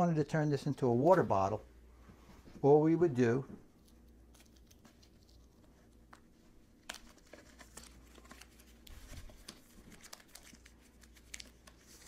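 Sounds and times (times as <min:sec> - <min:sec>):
liner crinkling and rustling: 0:03.6 - 0:12.0.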